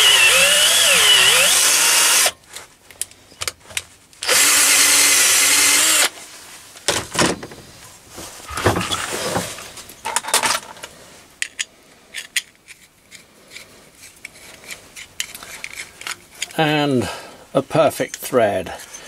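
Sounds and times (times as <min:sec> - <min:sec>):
cordless drill tapping metal: 0:00.0 - 0:02.3, 0:04.2 - 0:06.1
knocks and scrape: 0:06.2 - 0:16.6.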